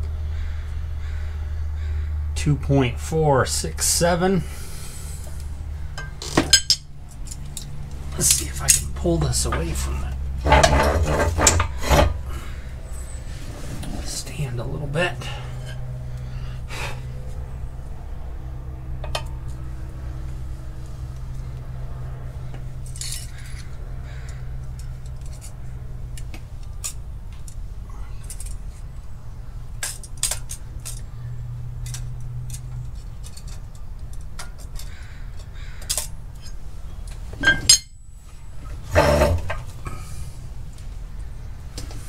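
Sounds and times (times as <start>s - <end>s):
steady low hum: 0.0s - 42.0s
small metal tools clinking: 6.0s - 9.8s, 22.8s - 23.7s, 29.8s - 31.1s, 31.8s - 38.1s.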